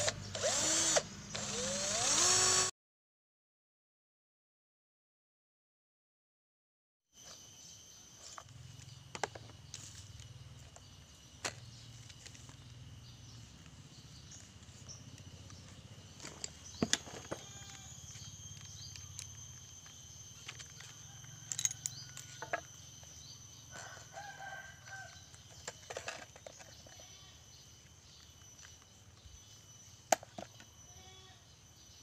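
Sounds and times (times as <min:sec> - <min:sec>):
tools clicking and knocking: 0:20.4 - 0:22.7, 0:25.4 - 0:27.0
rooster crowing: 0:20.8 - 0:22.7, 0:23.7 - 0:25.4.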